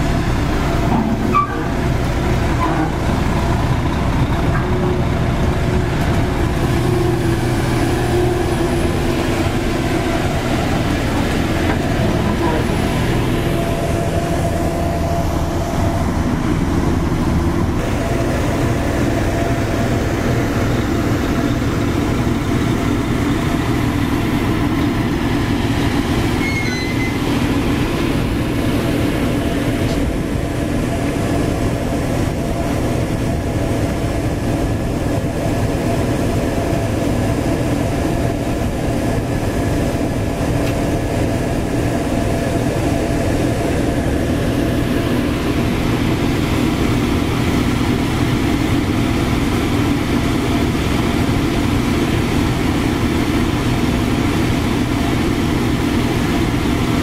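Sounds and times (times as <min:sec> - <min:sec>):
heavy diesel engine running: 0:00.0 - 0:57.0.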